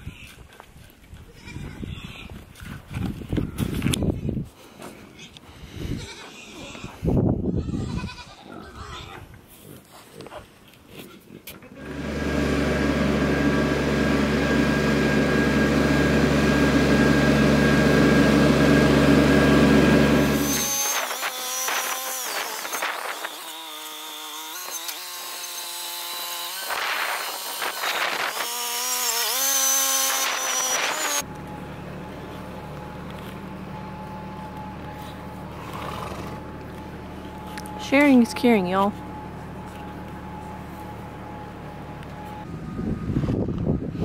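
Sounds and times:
tractor engine running: 11.8 - 20.8, 29.9 - 44.0
low steady hum: 31.2 - 44.0.

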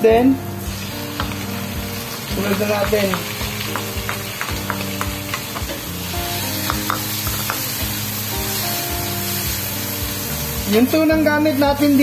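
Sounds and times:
background music with steady beat: 0.0 - 12.0
vegetables sizzling in hot oil: 0.0 - 12.0.

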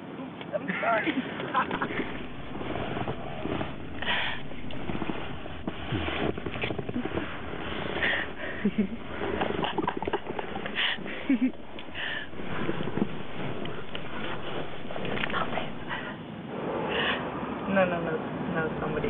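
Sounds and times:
person breathing and sniffing: 2.1 - 5.2, 10.6 - 16.2.

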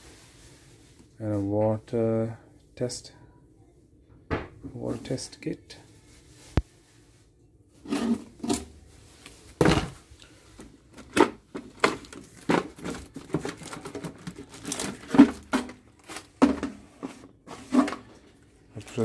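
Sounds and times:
packaging being handled: 10.9 - 16.8.

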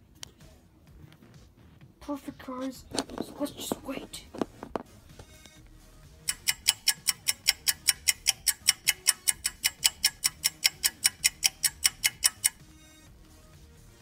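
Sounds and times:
rapid clock ticking: 6.2 - 12.7.

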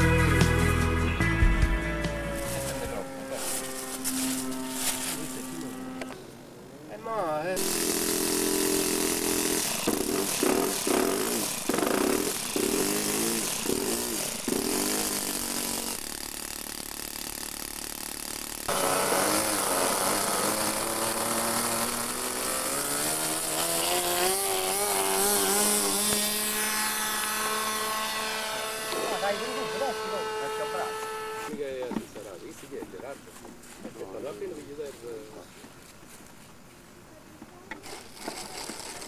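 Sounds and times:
model airplane engine revving: 1.8 - 6.2, 7.6 - 31.5, 37.7 - 39.0.

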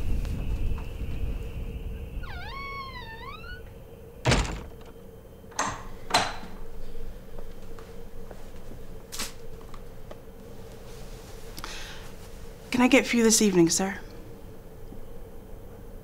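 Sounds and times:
faint steady hum: 0.0 - 16.0
door shutting with a thunk: 2.3 - 5.0.

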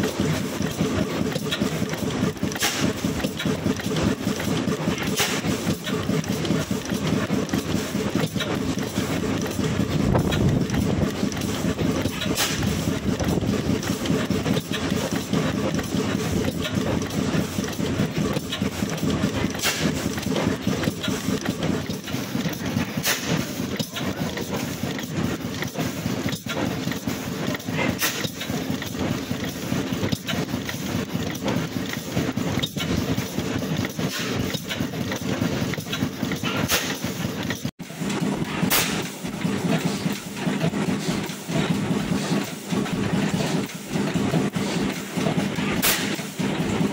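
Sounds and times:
oil engine clattering: 0.0 - 46.9
engine sharp click: 8.2 - 39.2, 44.8 - 46.7.

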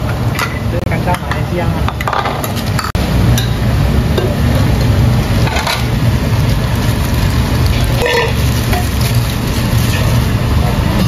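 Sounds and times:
kitchen low rumble: 0.0 - 11.0
metal kitchenware clinks: 8.0 - 8.4.

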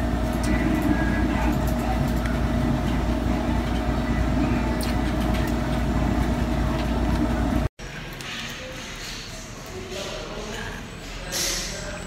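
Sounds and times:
faint tonal hum: 0.0 - 7.7.

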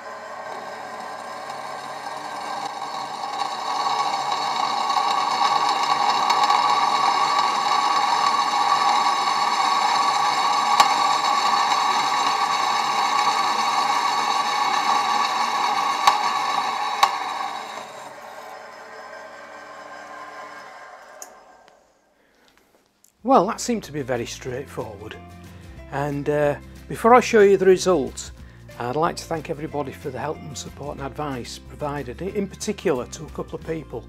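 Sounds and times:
drill cutting steel: 0.0 - 22.0
drill running: 0.0 - 22.1.

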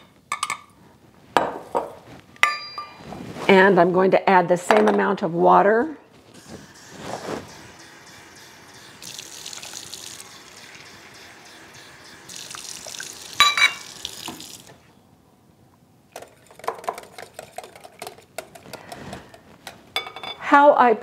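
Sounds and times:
metal clink: 2.4 - 3.0
faucet running into metal cup: 6.4 - 14.7.

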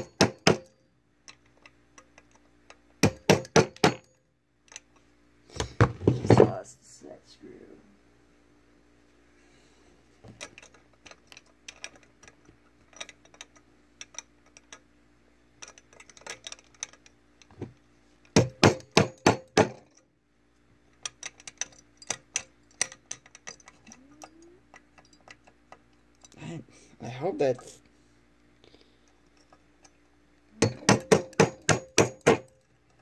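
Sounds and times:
hammer strikes on metal: 0.0 - 0.7, 3.0 - 4.1, 18.4 - 19.9, 30.6 - 32.5
small metal clicks and clinks: 0.6 - 2.8, 10.4 - 14.9, 15.6 - 17.5, 20.9 - 26.4, 29.0 - 31.4.

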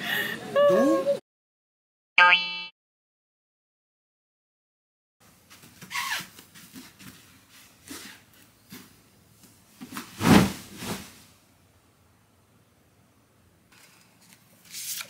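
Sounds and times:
bedding rustling: 9.6 - 11.4.

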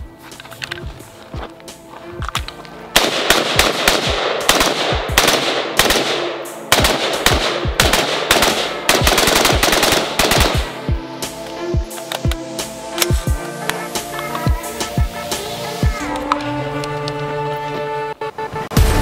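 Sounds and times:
background music: 0.0 - 19.0
rapid rifle shots: 3.0 - 10.8.

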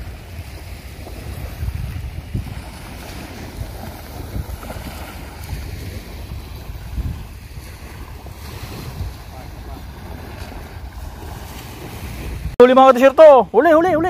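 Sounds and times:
small waves washing on beach: 0.0 - 14.0
wind gusting on microphone: 0.0 - 14.0.

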